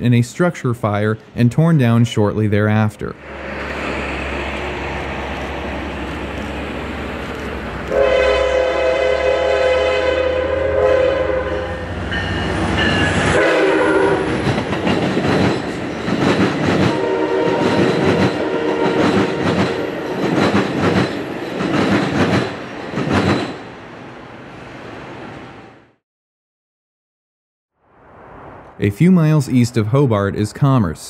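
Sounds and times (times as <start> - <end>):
train horn blasts: 7.9 - 12.0, 13.3 - 14.3, 16.9 - 17.8, 18.4 - 19.0
train wheels clicking over rail joints: 14.2 - 23.7.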